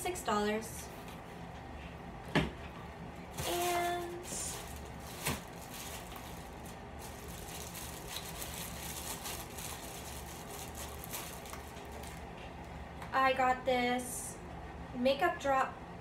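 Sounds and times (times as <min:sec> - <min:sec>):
low room hum: 0:00.0 - 0:16.0
rustling of items in box: 0:03.4 - 0:12.2.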